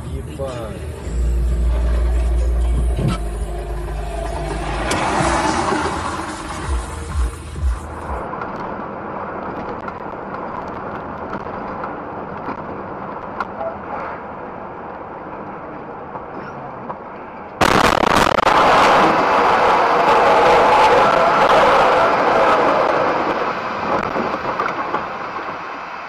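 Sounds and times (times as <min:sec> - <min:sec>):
truck cab and road noise: 0:00.0 - 0:26.0
loud vehicle crash: 0:01.6 - 0:07.3, 0:17.6 - 0:26.0.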